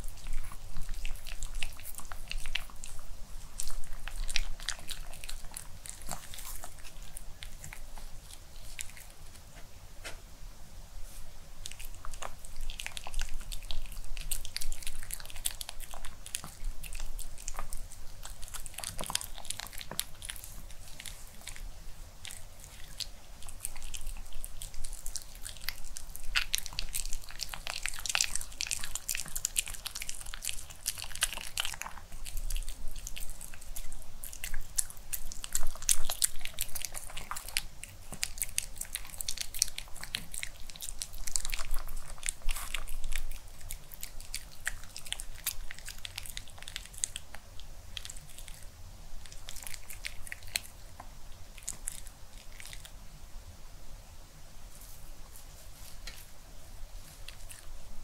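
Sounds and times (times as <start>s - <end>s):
dog chewing crunchy food: 0.0s - 9.6s, 11.6s - 53.0s, 54.8s - 58.0s.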